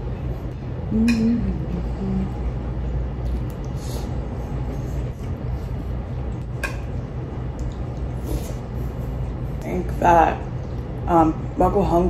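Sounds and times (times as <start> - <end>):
steady low rumble: 0.0 - 12.0
person humming: 0.8 - 2.6.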